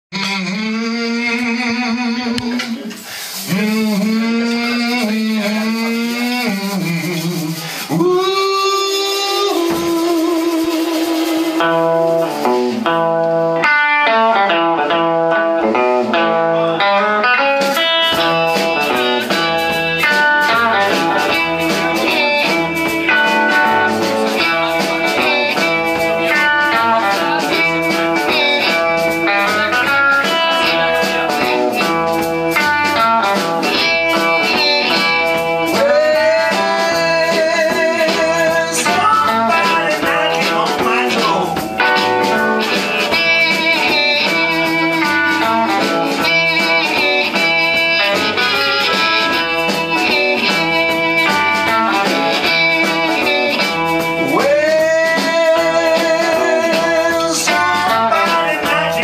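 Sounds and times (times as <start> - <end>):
bass guitar: 0.0 - 59.0
drums: 0.0 - 59.0
electric guitar riff: 0.1 - 59.0
harmonica: 16.2 - 59.0.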